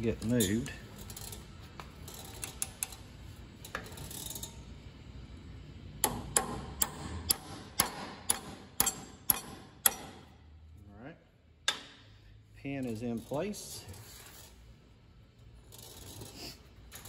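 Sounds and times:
hammer striking metal pin: 0:06.0 - 0:10.3, 0:11.6 - 0:12.0.

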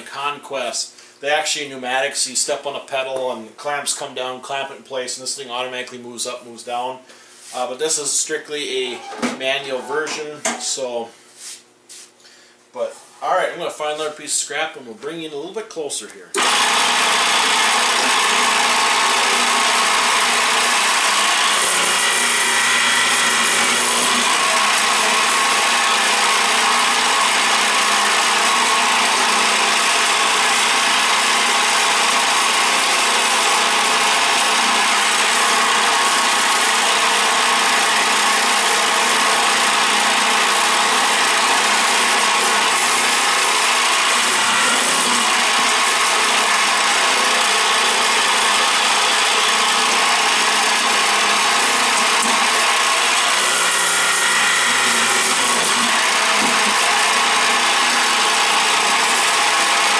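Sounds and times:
boring machine drilling wood: 0:16.4 - 0:59.9.

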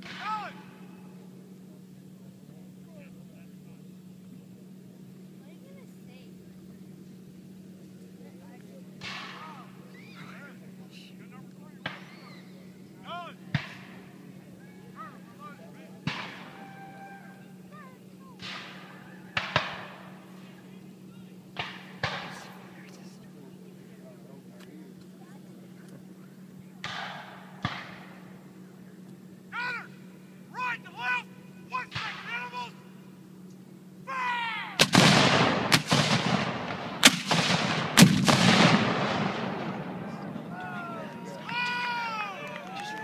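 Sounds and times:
cannons firing: 0:00.0 - 0:00.7, 0:09.0 - 0:09.8, 0:13.5 - 0:14.4, 0:15.0 - 0:16.8, 0:18.4 - 0:20.7, 0:21.5 - 0:22.9, 0:26.8 - 0:28.4, 0:31.8 - 0:32.5, 0:34.8 - 0:41.0
gunshots with echo: 0:18.4 - 0:20.3, 0:21.6 - 0:22.8, 0:34.8 - 0:40.5.

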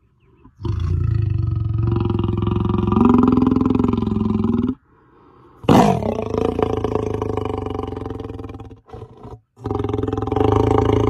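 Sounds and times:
lion roaring: 0:05.6 - 0:11.0.

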